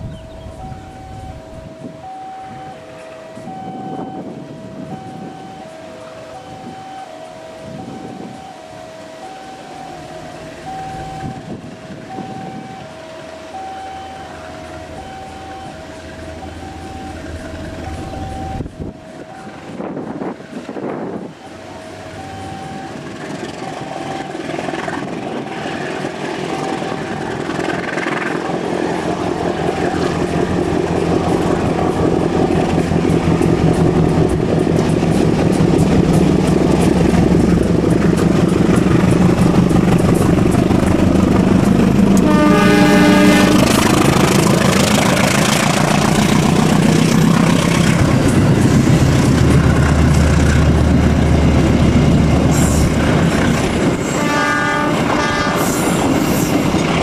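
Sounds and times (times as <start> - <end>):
locomotive engine working hard: 0.0 - 57.0
train horn blast: 9.5 - 20.2, 40.1 - 45.0, 53.8 - 56.7
train wheels clacking on rails: 14.1 - 57.0.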